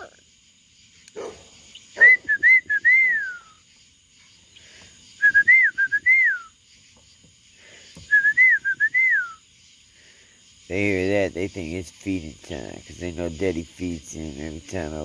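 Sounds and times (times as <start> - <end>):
man whistling: 2.0 - 3.6, 5.2 - 6.6, 8.0 - 9.4.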